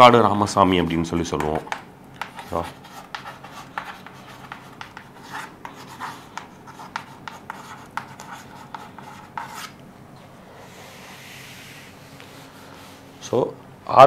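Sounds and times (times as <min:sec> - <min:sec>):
chalk tapping and scratching: 0:01.4 - 0:09.8.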